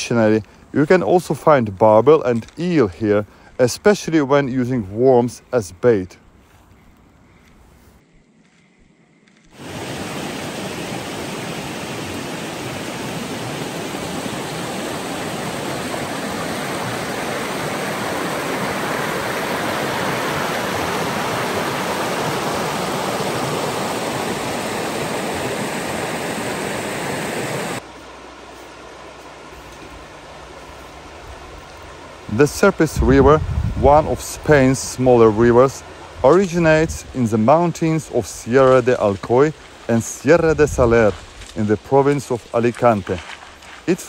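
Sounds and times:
river water rushing over stones: 0:09.6 - 0:33.0.

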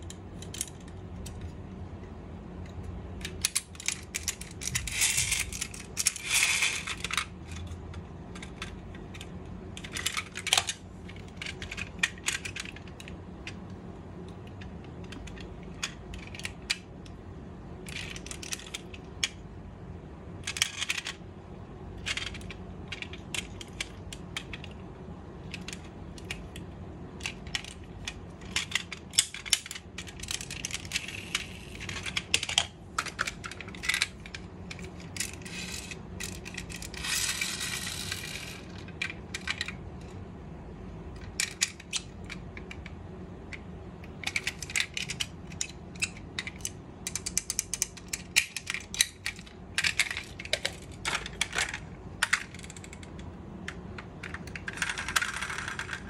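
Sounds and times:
metal model car parts clicking: 0:00.0 - 0:01.5, 0:03.2 - 0:13.7, 0:17.8 - 0:19.4, 0:20.4 - 0:21.2, 0:27.2 - 0:40.1, 0:41.2 - 0:42.9, 0:43.5 - 0:56.0.

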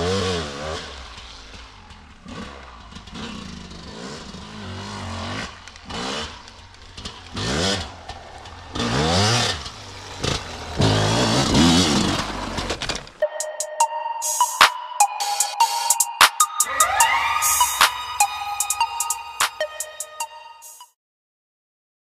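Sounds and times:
dirt bike engine revving: 0:00.0 - 0:13.2.

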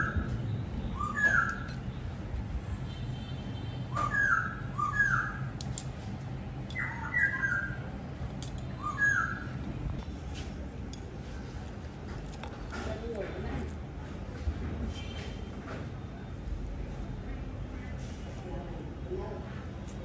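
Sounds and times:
birds chirping: 0:00.0 - 0:01.8, 0:06.7 - 0:08.0, 0:08.7 - 0:09.7.

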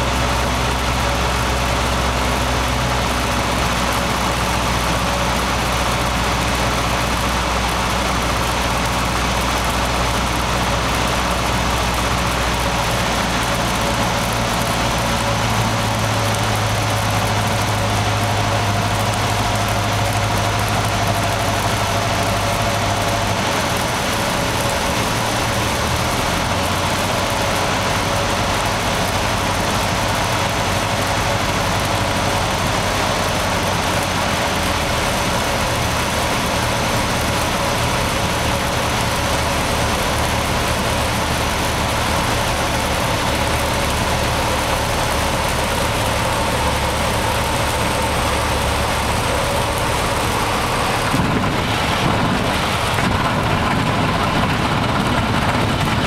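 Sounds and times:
airplane engine and propeller: 0:00.0 - 0:56.0
airflow noise: 0:46.1 - 0:56.0.

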